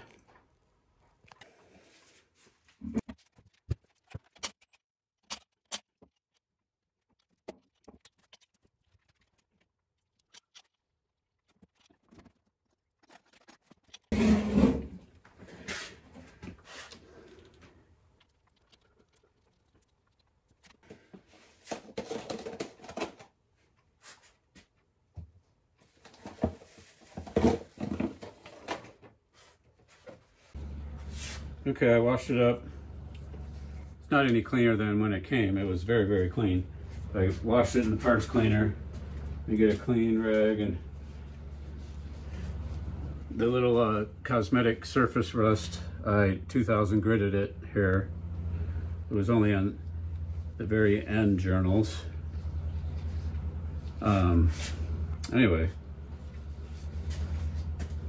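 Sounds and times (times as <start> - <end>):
rustling and scraping: 1.2 - 4.8, 11.4 - 24.8, 25.8 - 31.6, 36.8 - 43.3, 51.5 - 58.0.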